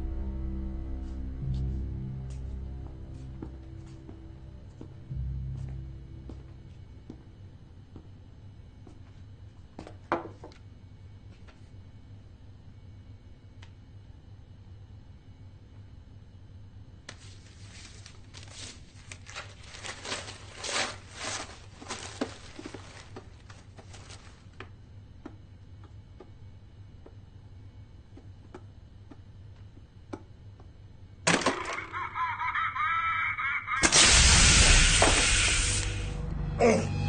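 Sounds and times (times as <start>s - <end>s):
wrapping paper crinkling: 17.1s - 24.6s
gas hissing out: 33.8s - 36.8s
wavering noise: 33.8s - 37.0s.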